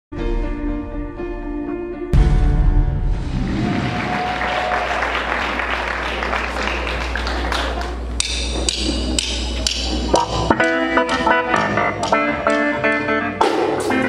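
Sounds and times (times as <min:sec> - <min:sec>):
electric keyboard playing: 0:05.0 - 0:14.0
electric guitar playing: 0:10.1 - 0:14.0.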